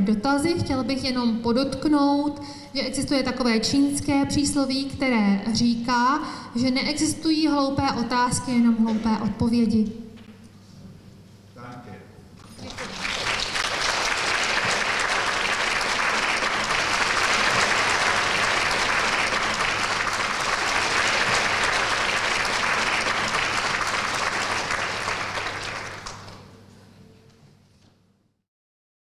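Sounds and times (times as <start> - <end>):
audience applauding: 12.5 - 26.5.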